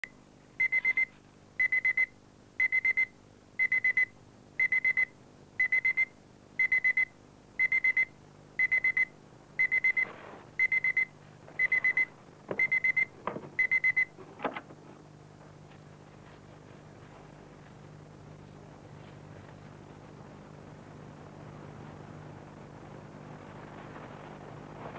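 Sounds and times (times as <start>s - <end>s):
electronic alarm beeping: 0.6s - 10.0s, 10.6s - 14.1s.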